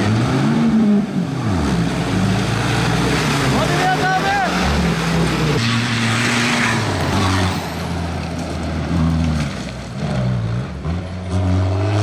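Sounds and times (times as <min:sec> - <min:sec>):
race car engine revving: 0:00.0 - 0:12.0.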